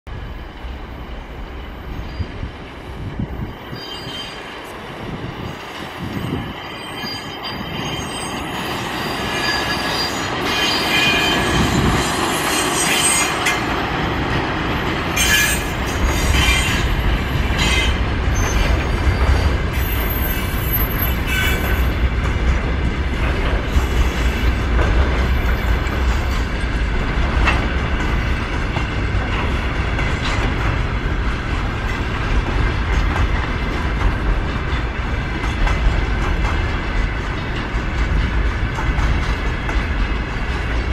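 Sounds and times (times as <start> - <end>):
freight train rumbling: 0.1 - 40.9
wheel squeals: 6.7 - 11.7.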